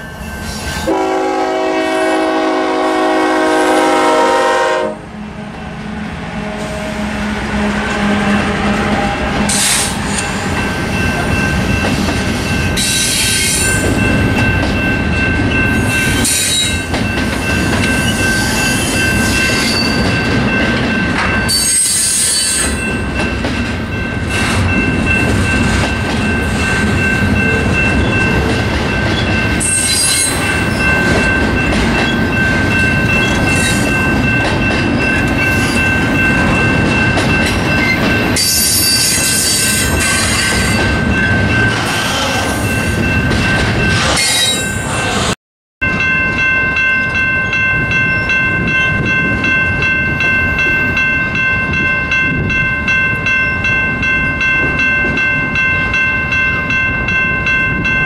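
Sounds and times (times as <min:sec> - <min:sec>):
freight train rumbling and rattling: 0:00.0 - 0:58.0
high-pitched squeal: 0:43.8 - 0:45.4.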